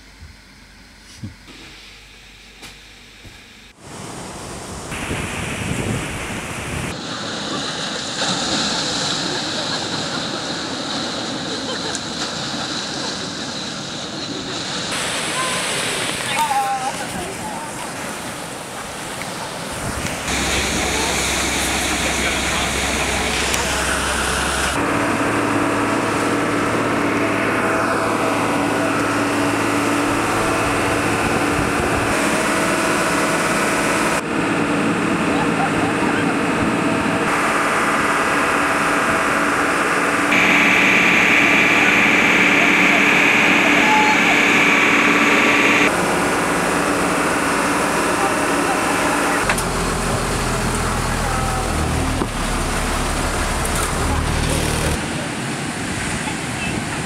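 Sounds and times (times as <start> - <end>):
water rushing and splashing: 3.8 - 57.0
waves breaking on beach: 3.8 - 57.0
tractor engine running: 20.2 - 55.0.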